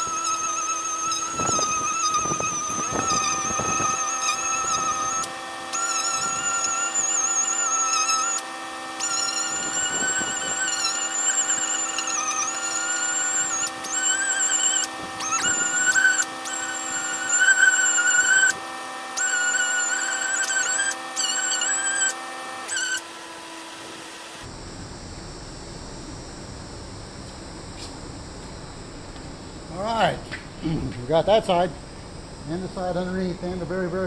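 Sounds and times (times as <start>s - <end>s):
orbital sander whining: 0.0s - 24.5s.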